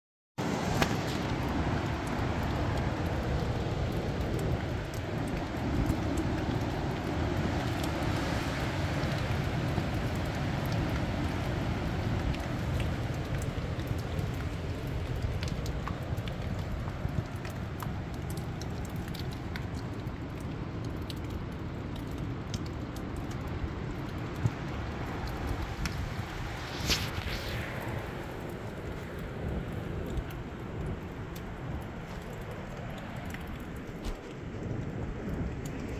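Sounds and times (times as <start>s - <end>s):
raindrops ticking: 0.4s - 35.9s
high wind blowing: 23.6s - 35.9s.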